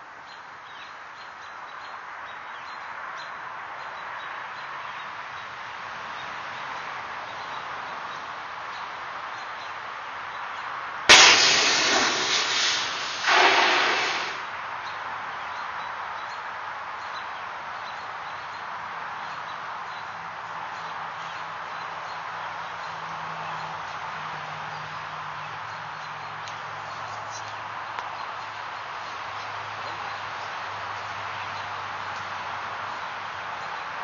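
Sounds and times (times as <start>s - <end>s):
fire suppression unit blast: 11.1s - 14.5s
hissing rush of discharge: 11.1s - 14.6s
steady faint rush: 11.1s - 14.6s.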